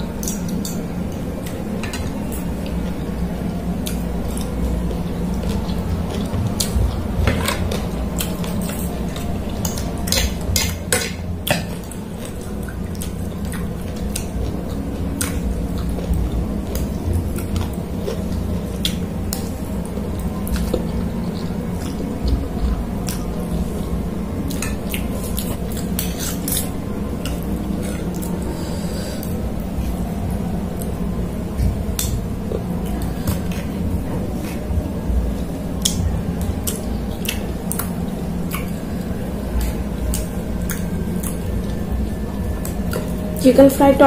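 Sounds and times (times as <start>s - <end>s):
chewing close to microphone: 3.8s - 23.9s, 31.6s - 43.4s.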